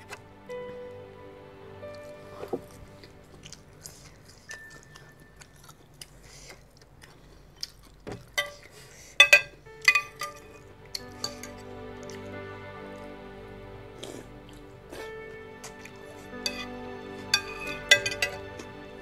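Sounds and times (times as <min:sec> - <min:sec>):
cutlery clinking on ceramic bowl: 0:09.2 - 0:10.4.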